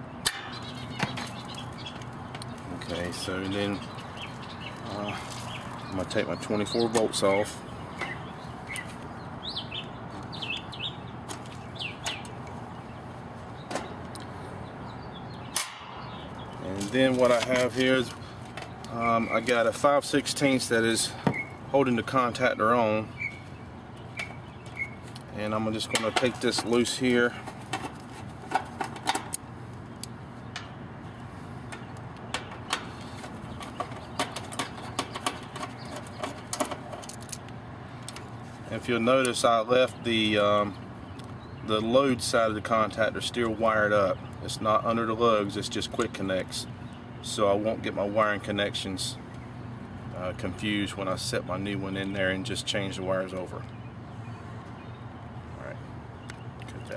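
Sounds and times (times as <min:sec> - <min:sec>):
small birds chirping: 0:00.0 - 0:56.9
metal clicks and taps: 0:33.6 - 0:38.3.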